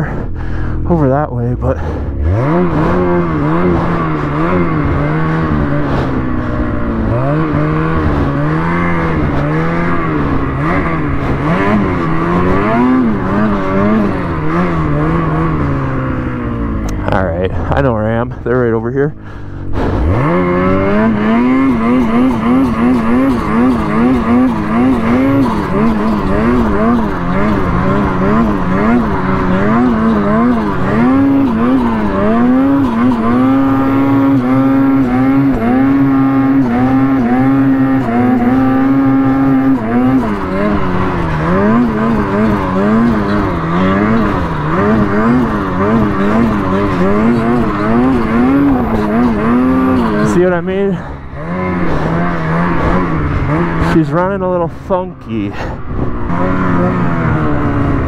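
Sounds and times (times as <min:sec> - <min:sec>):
snowmobile engine revving: 0:00.0 - 0:58.0
person speaking: 0:16.9 - 0:19.5, 0:53.9 - 0:55.8.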